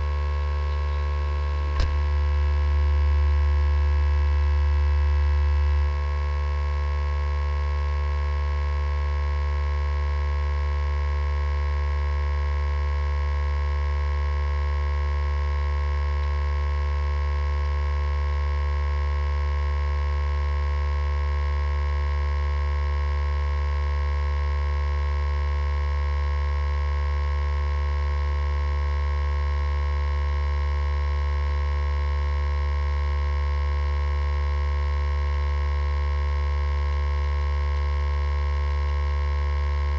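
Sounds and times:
electrical hum with whining tones: 0.0 - 5.9.

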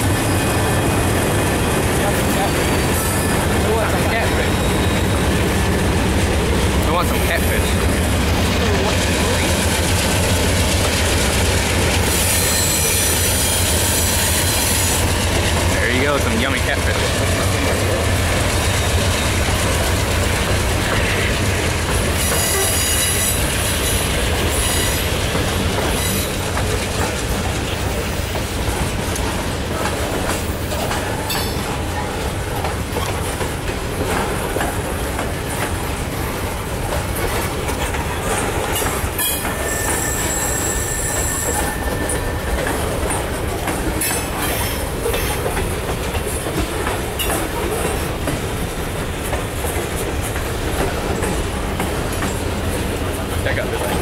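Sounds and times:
diesel locomotive engine hum: 0.0 - 54.0
high-pitched wheel squeals: 4.3 - 5.2, 12.0 - 15.1, 22.2 - 25.1, 39.2 - 42.4.

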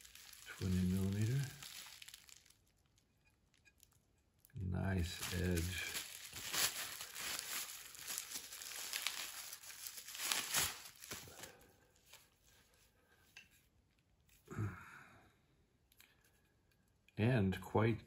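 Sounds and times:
plastic wrapping crinkling: 0.0 - 12.5.

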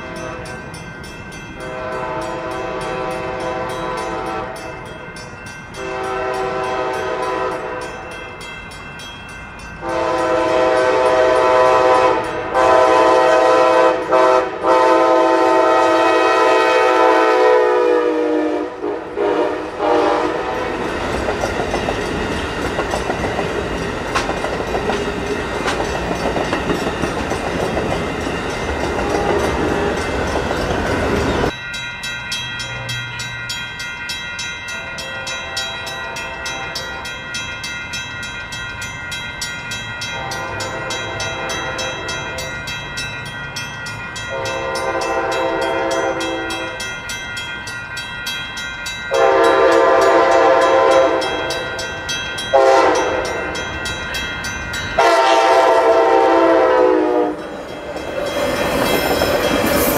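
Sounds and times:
train air horn blasts: 0.0 - 0.7, 1.6 - 4.9, 5.8 - 8.0, 9.8 - 20.9, 29.0 - 29.9, 34.8 - 37.2, 40.1 - 42.4, 44.3 - 46.8, 49.1 - 51.8, 52.5 - 53.5, 55.0 - 57.6
train wheels rumbling on rail: 0.0 - 59.9.

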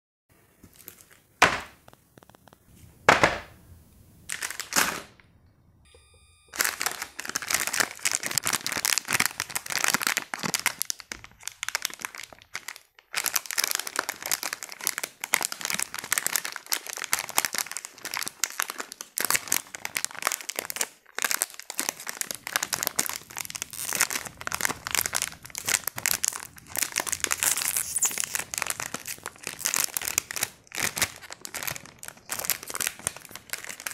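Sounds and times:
foil wrapper crinkling: 0.6 - 2.7, 4.3 - 5.1, 6.6 - 33.9
cutting board knocks: 3.1 - 3.5.

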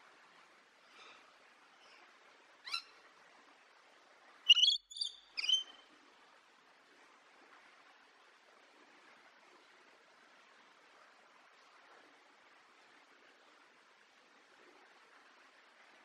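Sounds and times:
lorikeet calling: 2.7 - 2.9, 4.5 - 5.8.

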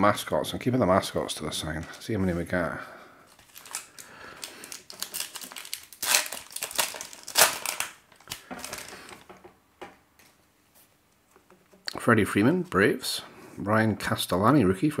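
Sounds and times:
wrapper crinkling: 3.3 - 9.2
cards rustling and clicking: 3.3 - 9.3.

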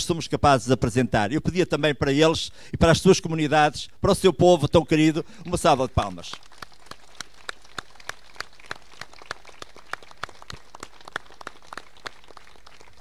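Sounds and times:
sparse applause: 5.4 - 13.0.

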